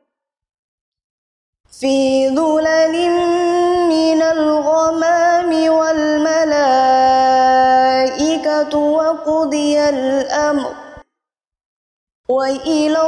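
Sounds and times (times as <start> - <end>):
woman chanting recitation: 1.7 - 11.0, 12.3 - 13.0.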